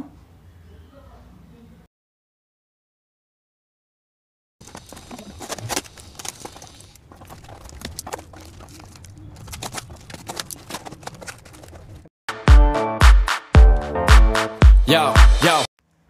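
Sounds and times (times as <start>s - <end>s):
cardboard box rustling: 4.6s - 12.1s
scissors snipping packing tape: 4.8s - 7.0s, 8.5s - 12.0s.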